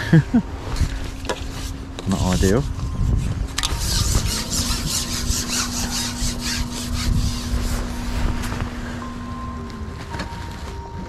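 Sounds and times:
fishing pole sections rasping: 0:01.2 - 0:09.0
wind buffeting microphone: 0:01.8 - 0:10.0.

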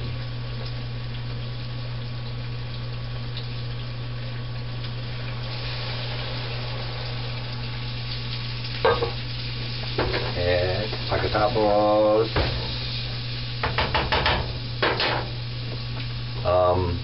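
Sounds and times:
broth simmering in a skillet: 0:00.0 - 0:17.0.

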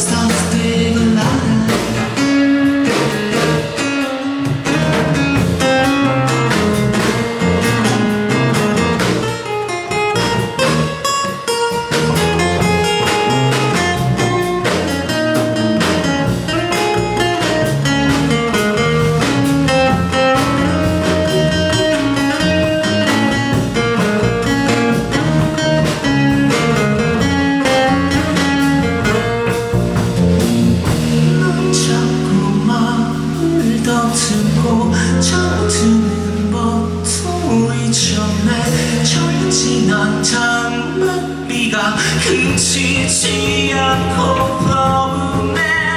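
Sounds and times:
acoustic guitars strumming: 0:00.0 - 0:45.9
drums: 0:00.0 - 0:45.9
electric bass: 0:00.0 - 0:45.9.

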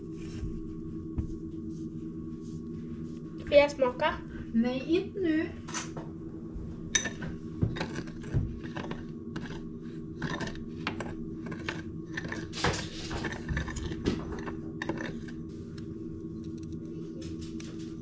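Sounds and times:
spoon clinking in glass bowl: 0:07.0 - 0:07.2.

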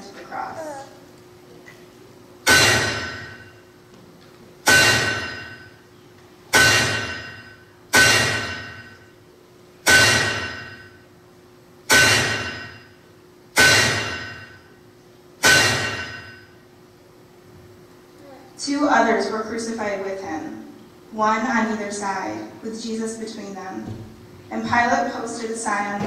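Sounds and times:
hammer striking a nail: 0:06.6 - 0:07.3, 0:08.0 - 0:08.8, 0:09.9 - 0:10.6, 0:11.9 - 0:12.7, 0:13.6 - 0:14.3, 0:15.4 - 0:16.2.

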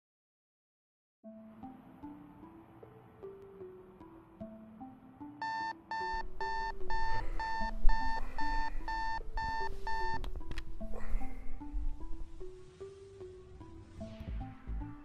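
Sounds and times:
light melodic background music: 0:01.2 - 0:15.0
alarm clock beeping: 0:05.4 - 0:10.2.

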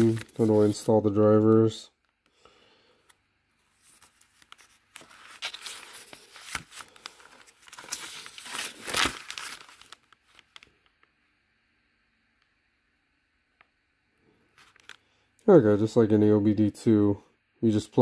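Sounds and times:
paper rustling and crinkling: 0:00.0 - 0:01.7, 0:03.6 - 0:10.7.

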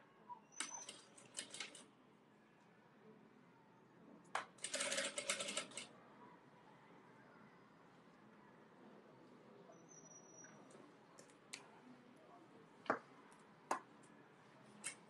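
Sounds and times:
sewing machine stitching: 0:00.6 - 0:01.8, 0:04.6 - 0:05.9.

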